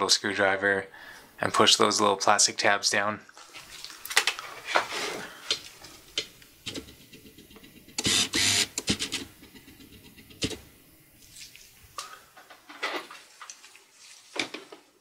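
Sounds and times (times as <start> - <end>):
rustling scrape: 3.5 - 6.0, 13.0 - 14.8.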